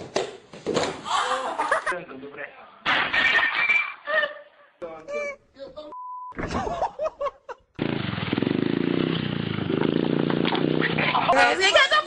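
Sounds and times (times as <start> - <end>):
short steady beep: 5.9 - 6.4.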